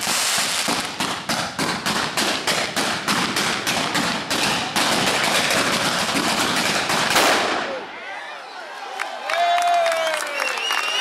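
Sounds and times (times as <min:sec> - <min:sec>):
firecrackers exploding: 0:00.0 - 0:07.8.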